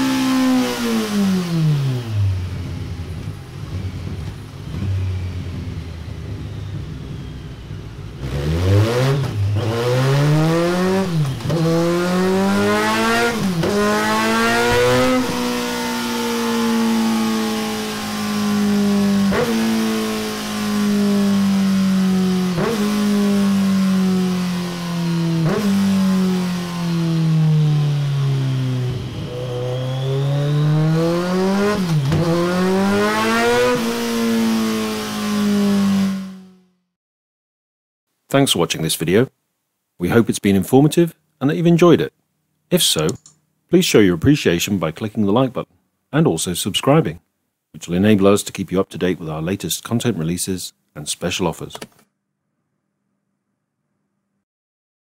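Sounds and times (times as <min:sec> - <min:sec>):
motorcycle engine revving: 0:00.0 - 0:36.9
short clicks: 0:42.9 - 0:43.4.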